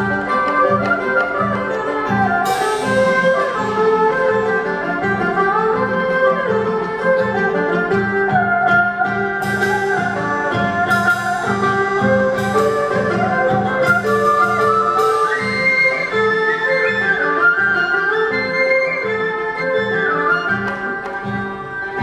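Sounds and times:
flute melody: 0:00.0 - 0:22.0
sharp percussion strikes: 0:01.7 - 0:05.7, 0:09.0 - 0:16.3.

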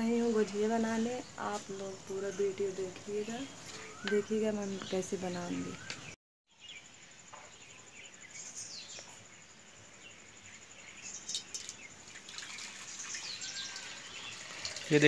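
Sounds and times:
birds chirping: 0:00.0 - 0:15.0
milk trickling into steel bowl: 0:11.2 - 0:15.0.

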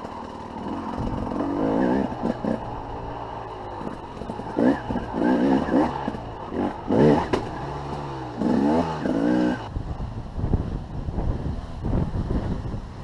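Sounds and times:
dirt bike engine running: 0:00.0 - 0:09.8.

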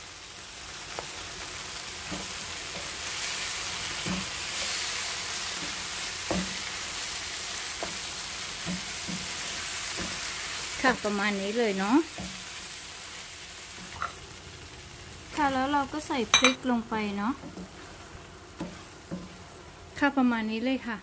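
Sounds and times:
vegetables sizzling in frying pan: 0:00.0 - 0:21.0
wooden spatula scraping pan: 0:18.6 - 0:19.4.

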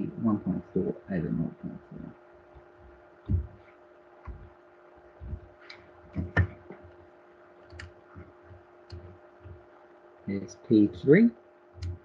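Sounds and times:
faint room hum: 0:00.0 - 0:12.0
soft knocks on desk: 0:03.3 - 0:03.6, 0:06.1 - 0:06.8.

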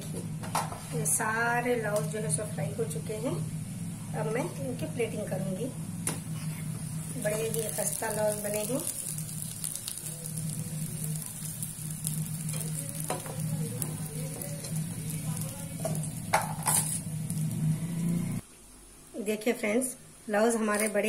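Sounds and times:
oil sizzling in a wok: 0:00.5 - 0:18.4
wire skimmer knocking on pan: 0:15.8 - 0:16.8.

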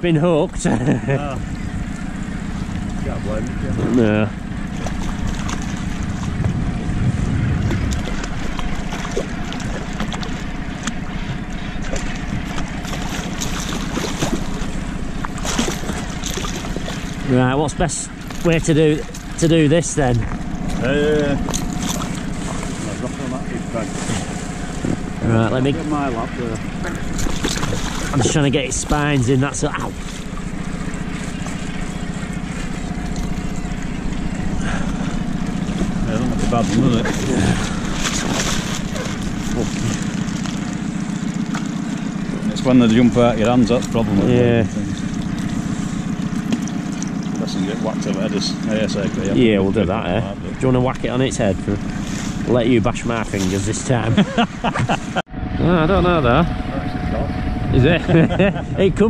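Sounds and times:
outboard motor idling: 0:00.0 - 0:59.0
wind rumble on microphone: 0:02.6 - 0:10.1, 0:24.0 - 0:25.4
fish splashing at water surface: 0:04.4 - 0:17.3, 0:20.0 - 0:25.2, 0:26.6 - 0:49.3.

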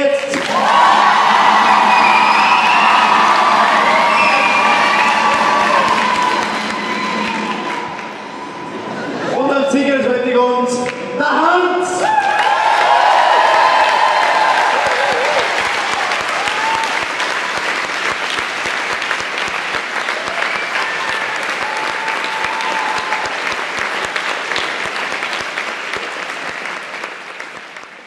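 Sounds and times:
audience applauding: 0:00.0 - 0:09.2, 0:12.1 - 0:28.0
cheering shouts: 0:00.3 - 0:09.5, 0:12.0 - 0:17.8, 0:20.0 - 0:23.9.

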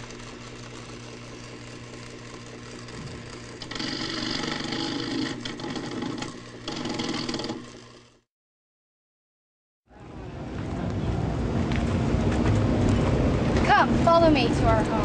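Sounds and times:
small machine whirring and clattering: 0:00.0 - 0:08.3.

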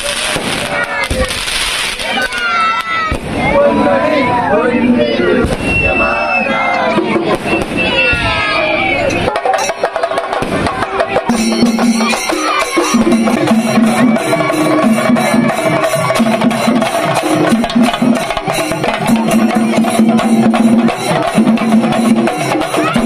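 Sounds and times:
festival music with fast drumming: 0:00.0 - 0:23.0.

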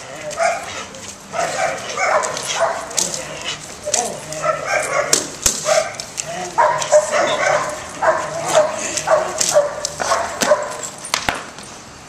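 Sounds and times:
sharp cracks: 0:05.1 - 0:07.0.

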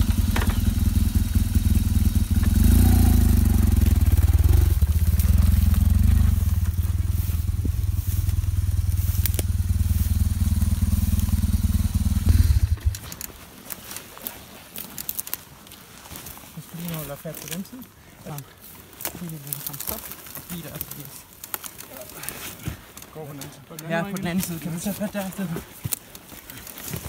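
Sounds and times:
motorcycle engine running: 0:00.0 - 0:13.3
crackles: 0:00.0 - 0:27.0.

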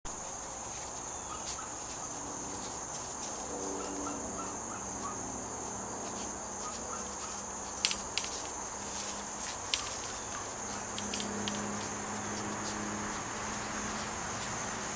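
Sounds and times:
insects buzzing: 0:00.1 - 0:14.9
sharp clicks: 0:07.8 - 0:08.5.

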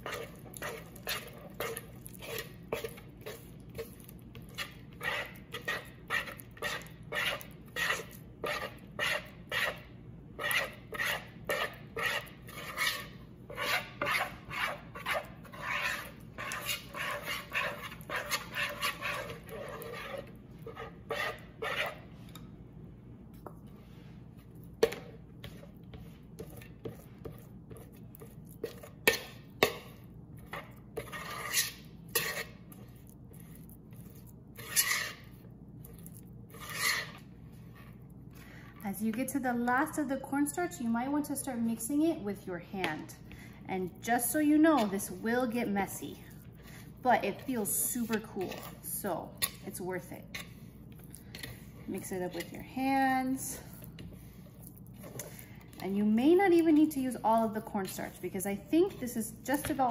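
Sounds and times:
spoon scraping a bowl: 0:00.0 - 0:22.4, 0:24.4 - 0:38.8, 0:44.2 - 0:59.9.

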